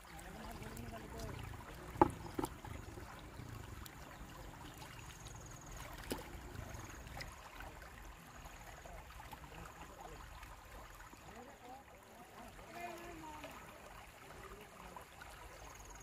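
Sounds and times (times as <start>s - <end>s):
river water trickling over sand: 0.0s - 16.0s.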